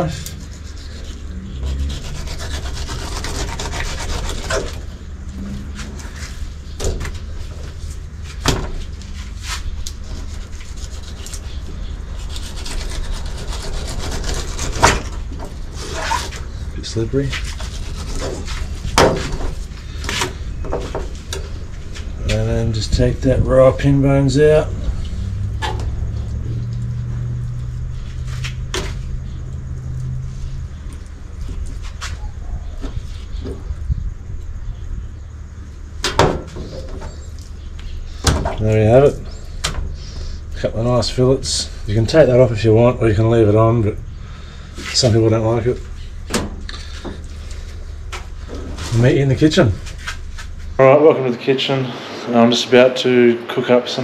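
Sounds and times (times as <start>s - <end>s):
knife scraping fish fillet: 0.0s - 4.9s, 9.4s - 16.5s, 17.3s - 19.0s
low mechanical hum: 0.0s - 54.0s.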